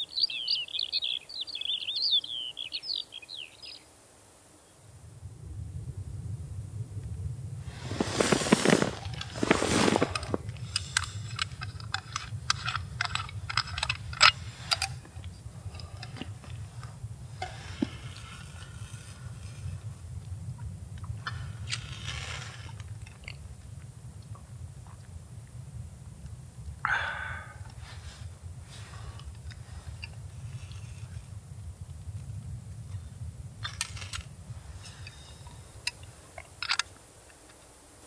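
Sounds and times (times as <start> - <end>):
steady low rumble: 4.8 - 36.6
soft rustling: 7.6 - 20.0, 27.8 - 32.0
loud rustling crunches: 7.7 - 16.6.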